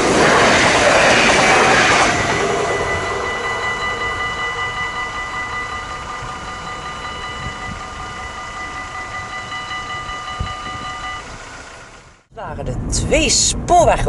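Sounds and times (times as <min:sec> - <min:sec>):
departing train: 0:00.0 - 0:14.0
level crossing bells ringing: 0:02.3 - 0:11.4.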